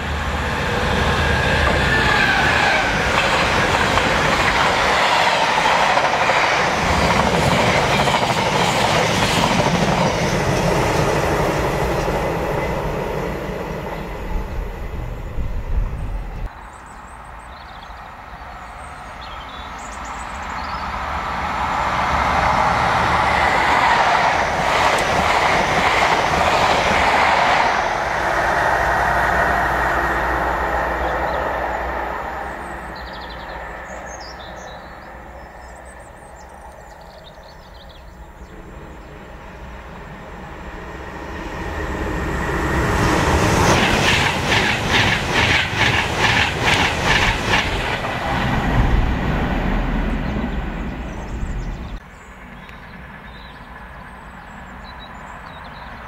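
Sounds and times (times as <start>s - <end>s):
train passing at speed: 0.0s - 56.0s
train wheels clattering over rail joints: 43.6s - 48.9s.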